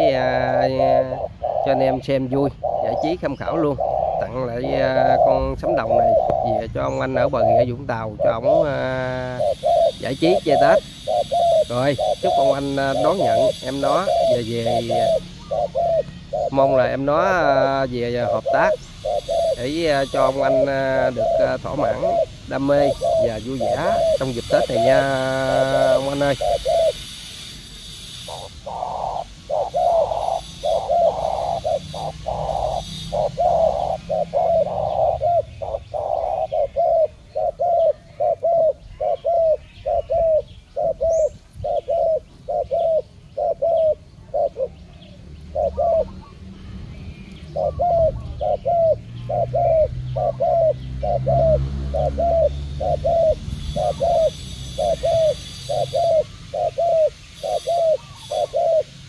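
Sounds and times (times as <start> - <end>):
doves cooing: 0.0 - 59.0.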